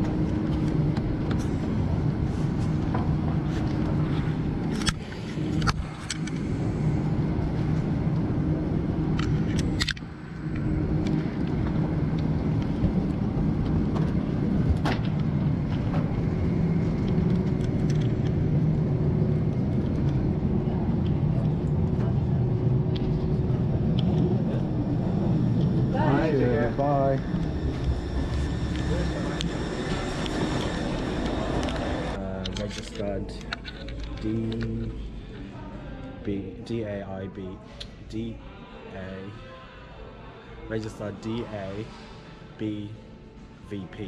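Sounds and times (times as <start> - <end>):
cabin ventilation hum: 0.0 - 39.4
clicks and knocks of passengers: 9.1 - 24.8.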